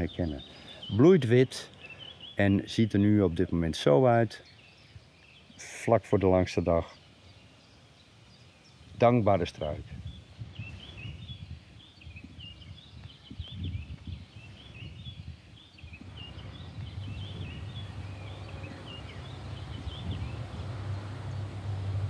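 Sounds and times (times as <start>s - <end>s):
small birds chirping: 0.0s - 22.0s
low rumble: 16.0s - 22.0s.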